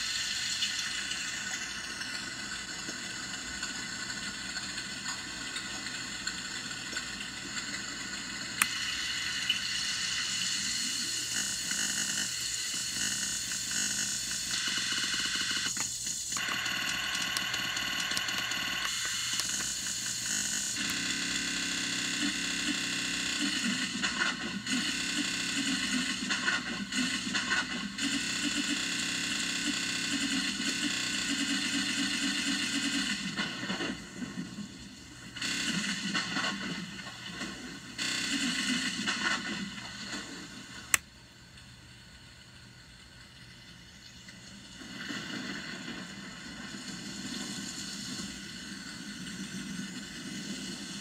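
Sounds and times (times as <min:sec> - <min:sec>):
glitched pitch-bent hiss: 0:00.0 - 0:41.0, 0:41.9 - 0:51.0
fast stuttering buzz: 0:01.0 - 0:40.4.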